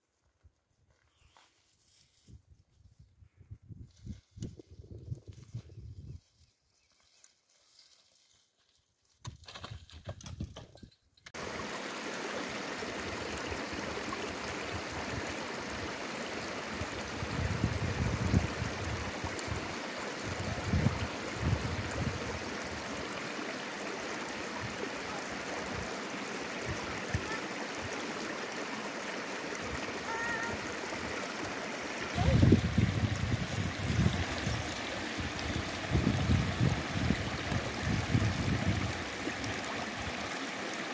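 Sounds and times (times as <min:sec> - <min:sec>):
running water rushing: 0:11.4 - 0:40.9.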